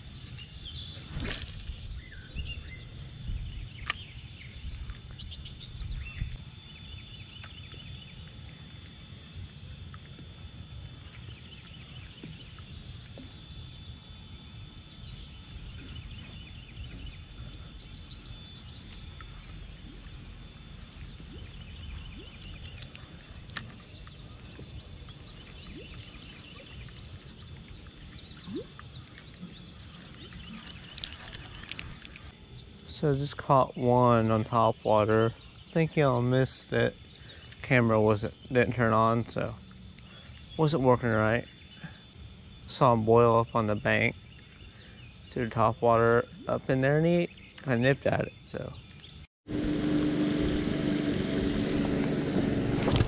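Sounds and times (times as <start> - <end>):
small birds chirping: 0.2 - 49.3
low rumble: 49.5 - 53.0.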